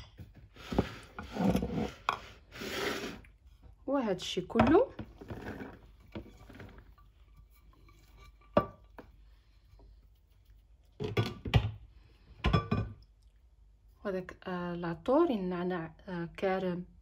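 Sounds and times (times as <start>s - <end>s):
vegetables scraped off a plate: 0.6s - 3.4s
ceramic clatter: 5.9s - 9.0s, 12.4s - 13.0s.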